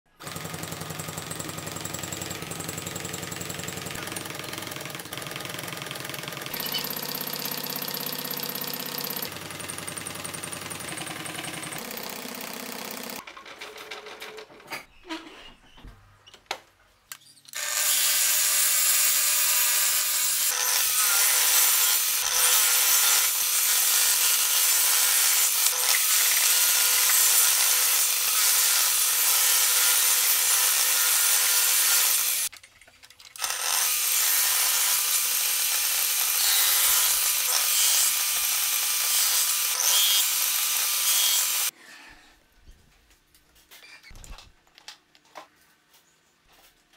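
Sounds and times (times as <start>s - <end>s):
table saw cutting wood: 5.6s - 13.2s, 17.5s - 32.5s, 33.4s - 41.7s.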